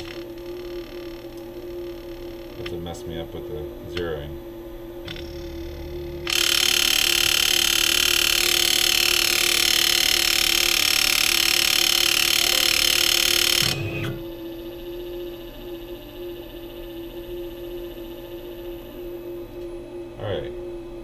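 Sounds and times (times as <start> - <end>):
electric motor whining: 5.0 - 19.6.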